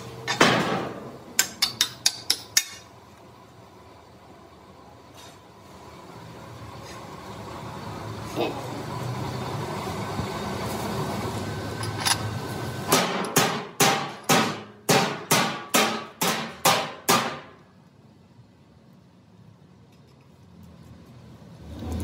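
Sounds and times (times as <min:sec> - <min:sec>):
mechanical hum: 0:00.0 - 0:22.0
hammer striking steel: 0:00.2 - 0:02.9, 0:12.9 - 0:17.6.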